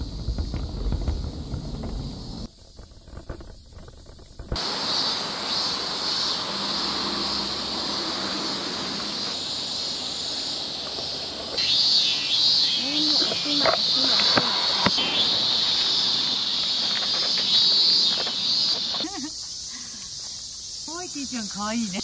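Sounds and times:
wind buffeting microphone: 0.0s - 4.6s
cicadas droning: 0.0s - 22.0s.

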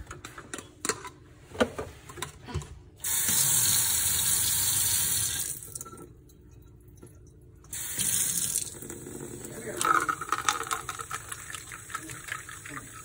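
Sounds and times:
faucet running into steel sink: 3.0s - 6.0s, 7.7s - 9.8s.

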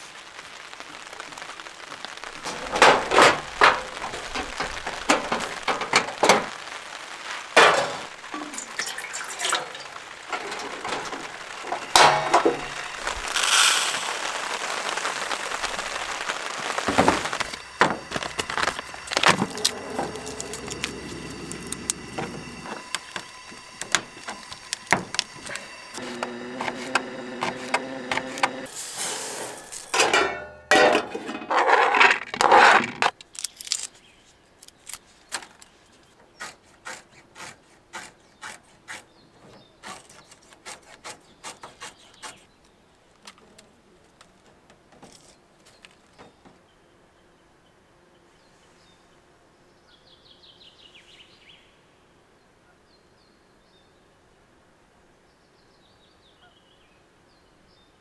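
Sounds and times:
pots clattering: 7.6s - 14.1s, 16.8s - 33.1s
liquid poured into a pot: 8.4s - 10.0s.

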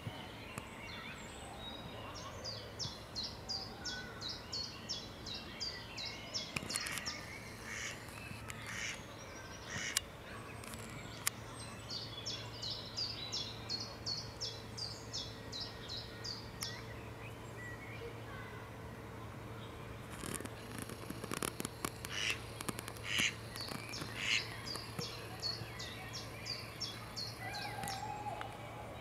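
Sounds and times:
ducklings peeping: 4.6s - 10.0s, 20.2s - 28.4s
sharp clicks: 6.5s - 7.2s, 9.7s - 11.4s, 20.1s - 25.2s.

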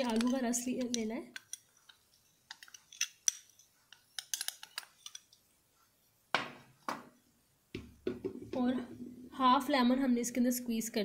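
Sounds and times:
glass bowl knocking on glass table: 7.8s - 8.6s.

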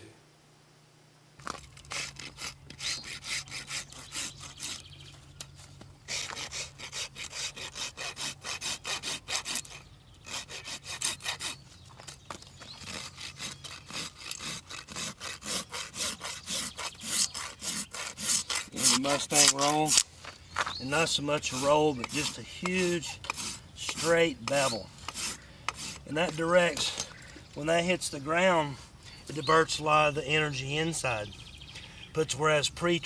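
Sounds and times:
rasp filing a hoof: 1.8s - 5.1s, 6.1s - 20.1s, 20.8s - 27.2s.

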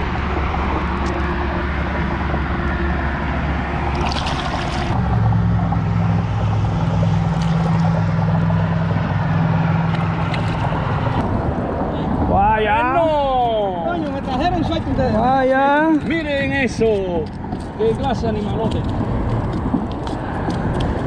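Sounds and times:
low engine drone: 0.0s - 12.3s
water splashing and trickling: 0.1s - 11.2s.

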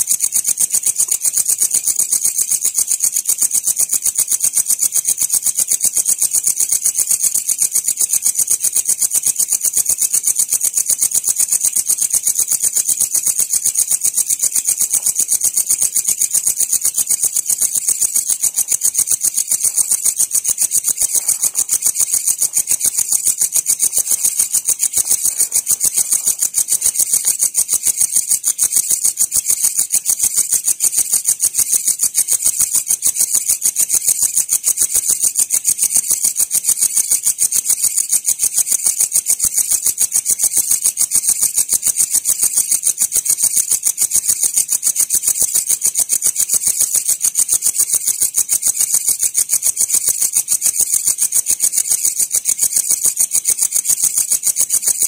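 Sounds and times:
crickets chirping: 0.0s - 55.0s.

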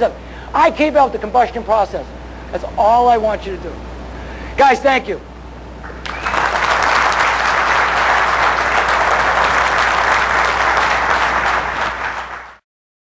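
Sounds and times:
audience applause: 5.9s - 12.6s.

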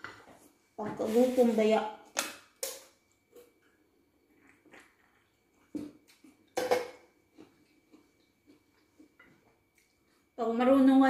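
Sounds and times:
person chewing food: 3.0s - 10.4s.

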